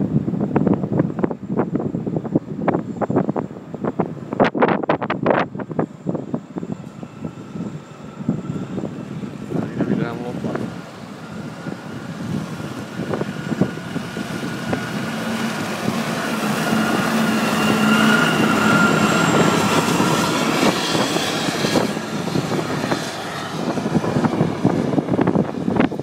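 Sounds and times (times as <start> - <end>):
diesel engine whining driving past: 5.6 - 26.0.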